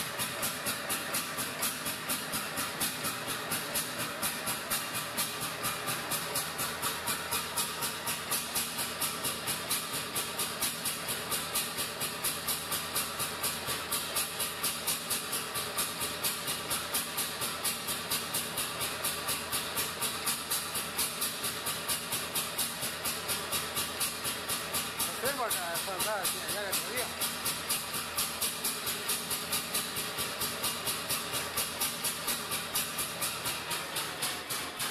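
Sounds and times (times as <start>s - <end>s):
two-stroke engine running slowly: 0.0s - 34.9s.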